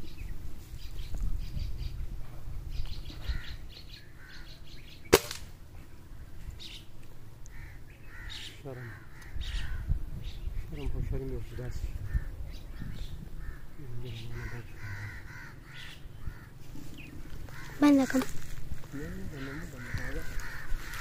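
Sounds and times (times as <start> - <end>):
birds chirping: 0.0 - 21.0
sharp crack: 5.1 - 5.6.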